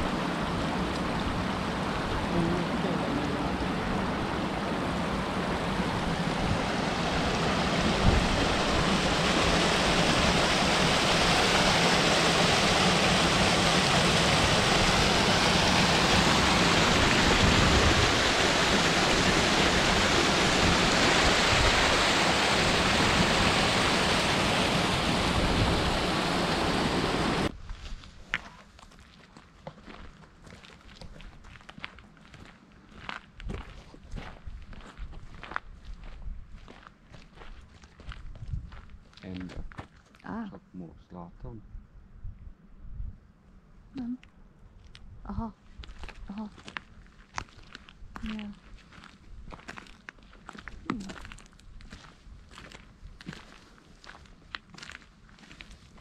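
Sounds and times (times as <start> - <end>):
stream rushing over rocks: 0.0 - 27.5.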